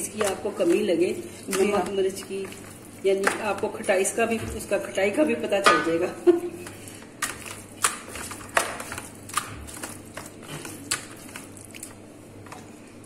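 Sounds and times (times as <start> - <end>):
hands squishing raw meat: 6.6 - 12.7.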